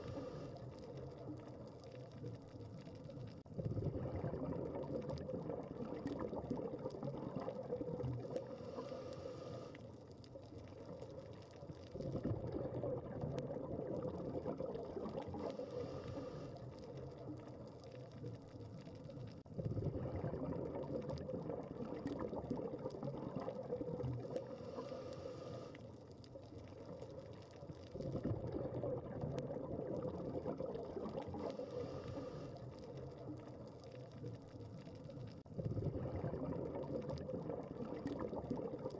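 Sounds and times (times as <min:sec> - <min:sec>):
diver exhaling bubbles: 0:03.5 - 0:09.7, 0:11.9 - 0:16.7, 0:19.6 - 0:25.7, 0:27.9 - 0:33.5, 0:35.5 - 0:38.9.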